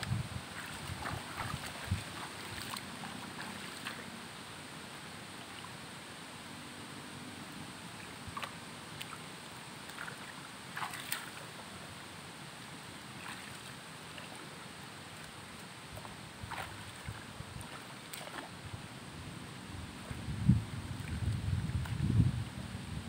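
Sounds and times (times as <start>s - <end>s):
outdoor hiss: 0.0s - 21.0s
splashes in shallow water: 0.5s - 4.1s, 8.0s - 11.7s, 13.1s - 18.7s.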